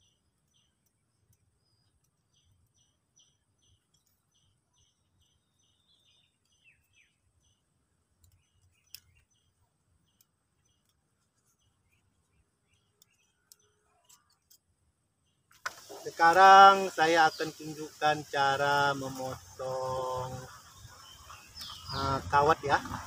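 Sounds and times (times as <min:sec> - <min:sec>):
faint high chirping: 0:00.0 - 0:14.6.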